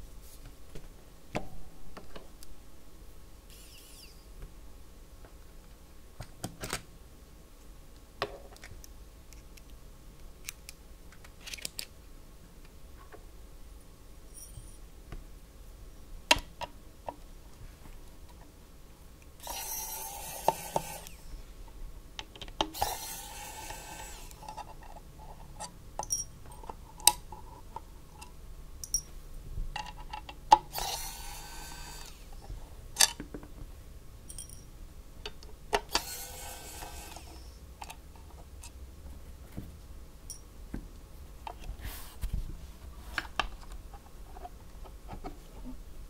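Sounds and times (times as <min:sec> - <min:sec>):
screwdriver scraping metal screws: 0:19.4 - 0:21.2, 0:22.8 - 0:24.6, 0:35.9 - 0:37.5.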